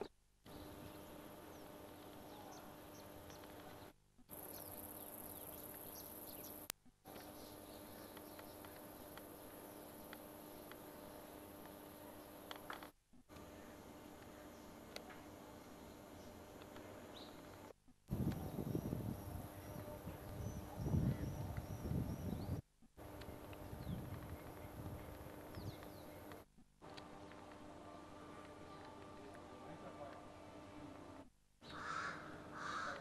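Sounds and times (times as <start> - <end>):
faint steady hum: 0.0 - 33.0
small birds chirping: 0.5 - 12.7, 15.6 - 26.4.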